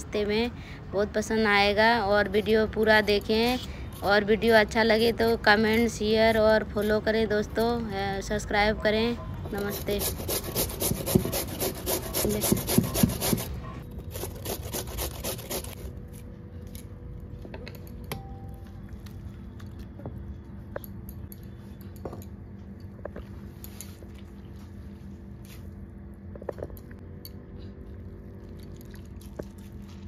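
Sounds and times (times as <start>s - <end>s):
potato rasping on grater: 9.6s - 15.9s.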